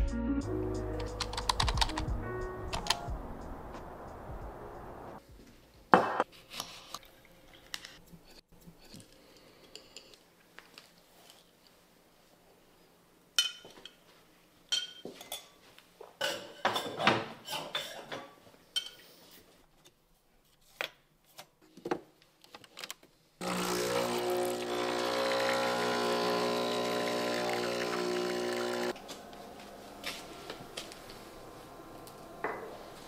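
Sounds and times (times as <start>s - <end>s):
espresso machine humming: 23.4s - 29.0s.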